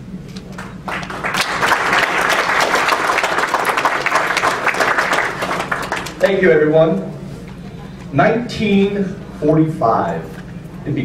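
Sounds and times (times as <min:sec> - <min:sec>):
audience applauding: 0:00.5 - 0:06.4.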